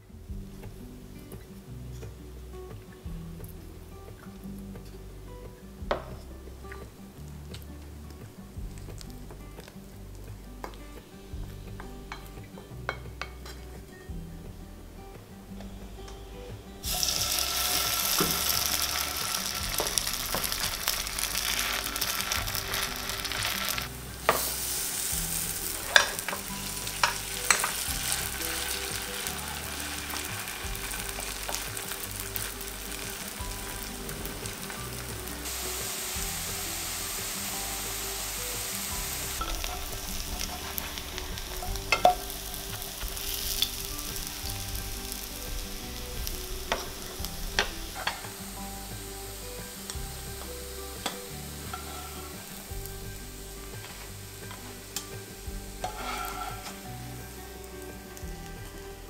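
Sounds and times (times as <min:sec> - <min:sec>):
batter sizzling in hot oil: 0:16.8 - 0:59.0.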